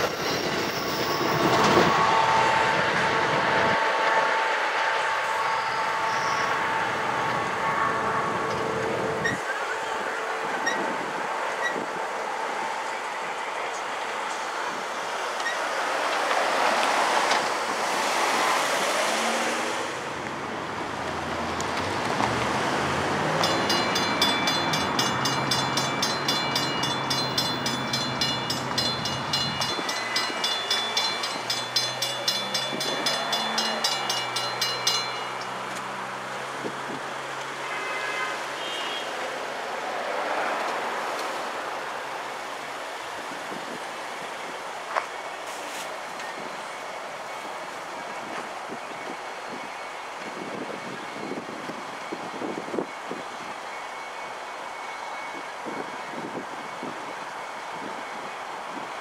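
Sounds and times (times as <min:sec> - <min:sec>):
railroad crossing bell ringing: 0:00.0 - 0:09.4, 0:23.2 - 0:36.8
train rail noise: 0:00.0 - 0:59.0.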